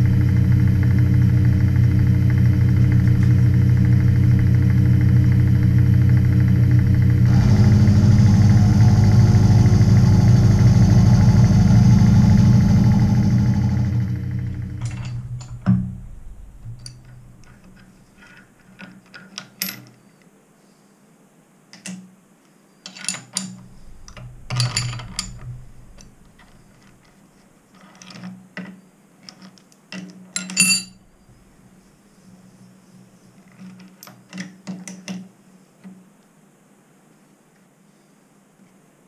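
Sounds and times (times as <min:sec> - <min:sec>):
machine motor hum: 0:00.0 - 0:18.4, 0:23.5 - 0:27.2, 0:31.0 - 0:32.0
metal tools clinking and clanking: 0:30.4 - 0:31.0.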